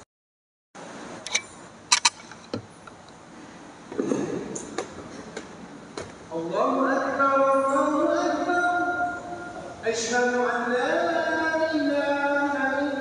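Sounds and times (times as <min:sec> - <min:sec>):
sharp clicks and clinks: 0:01.2 - 0:02.6.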